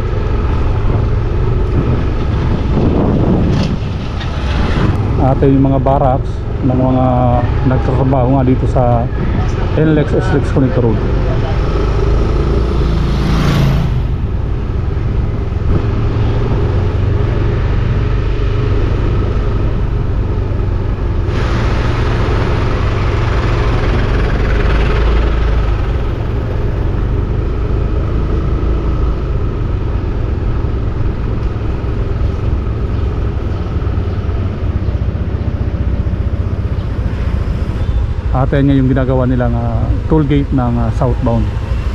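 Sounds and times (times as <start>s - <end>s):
wind rumble on microphone: 0.0s - 28.2s
vehicle engine and road noise: 0.0s - 41.9s.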